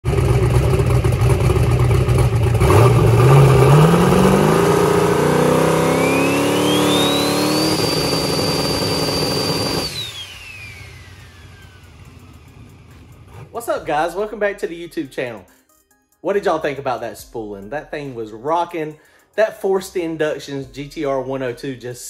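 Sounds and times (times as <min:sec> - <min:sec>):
car engine revving: 0:00.0 - 0:13.6
turbo whine: 0:00.1 - 0:13.4.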